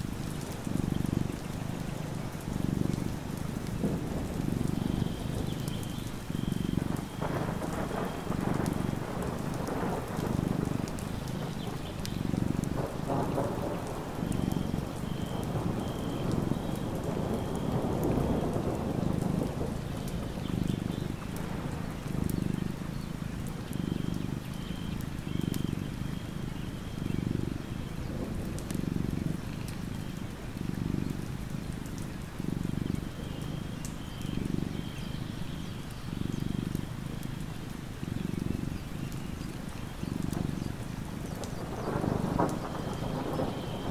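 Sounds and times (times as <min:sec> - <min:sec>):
steady rain: 0:00.0 - 0:43.9
cat purring: 0:00.2 - 0:43.7
thunder: 0:06.7 - 0:24.4, 0:40.3 - 0:43.9.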